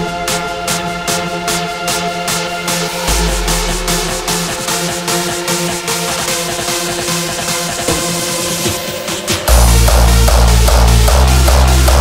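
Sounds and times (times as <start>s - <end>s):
electronic dance music: 3.2s - 12.0s.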